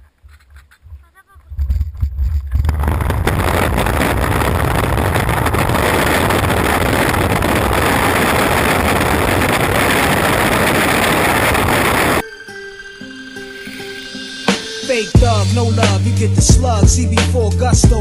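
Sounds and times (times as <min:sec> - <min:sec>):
wind buffeting microphone: 0:00.2 - 0:12.2
longboard wheels on rough asphalt: 0:02.4 - 0:12.2.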